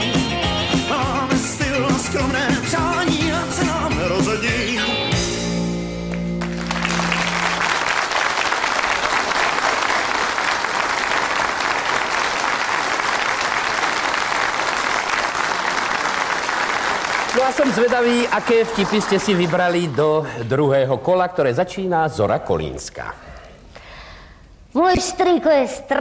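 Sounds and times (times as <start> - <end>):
rock band playing: 0.0 - 7.6
audience applauding: 6.1 - 20.3.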